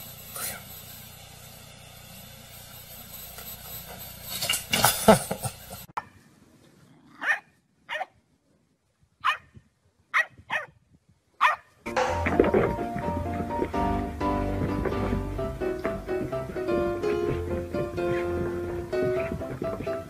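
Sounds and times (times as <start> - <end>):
puppy yipping: 7.2 - 8.1, 9.2 - 9.5, 10.2 - 10.7, 11.4 - 11.7.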